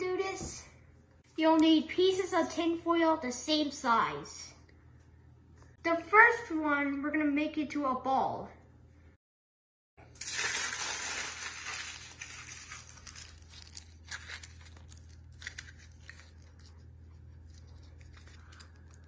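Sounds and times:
aluminium foil crumpling: 10.2s - 19.0s.

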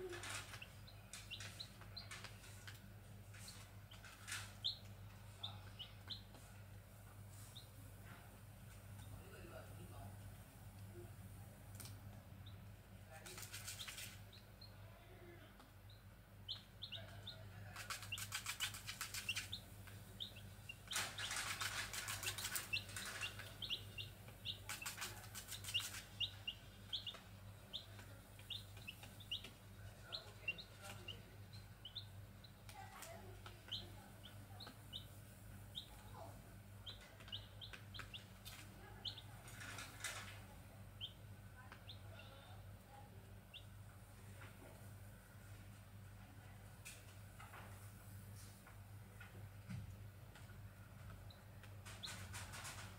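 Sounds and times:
chicks peeping: 0.0s - 8.1s, 11.7s - 45.6s, 50.4s - 52.9s
wing flapping: 17.8s - 19.6s, 20.8s - 23.8s, 24.5s - 26.1s.

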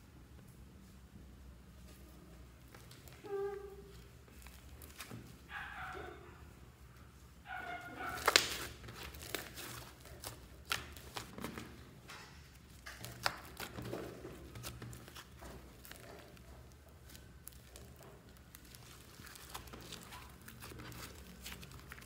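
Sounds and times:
slime squelching: 7.7s - 11.9s, 12.5s - 22.0s.

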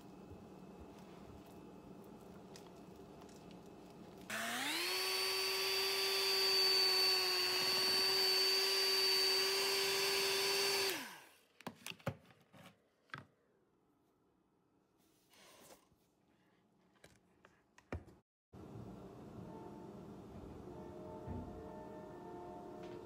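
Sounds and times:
electric hand mixer whining: 4.3s - 11.3s.

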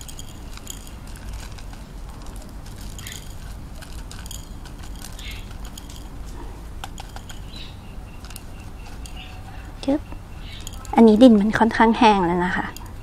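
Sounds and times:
plastic pot crinkling: 0.0s - 9.5s
steady low hum: 0.0s - 13.0s.

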